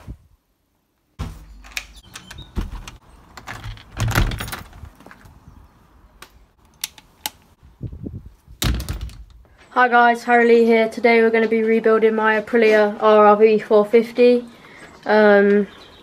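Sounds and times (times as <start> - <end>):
door handle and latch clicks: 1.6 - 4.8.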